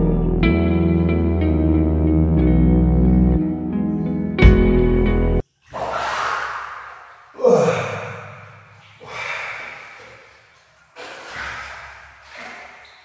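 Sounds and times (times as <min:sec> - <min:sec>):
water splashing in a pool: 0:05.4 - 0:13.0.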